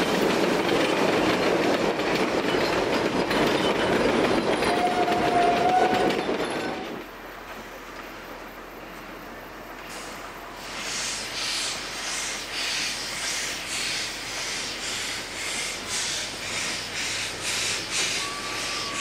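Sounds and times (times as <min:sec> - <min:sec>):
steam locomotive exhaust chuffing: 0:09.8 - 0:19.0.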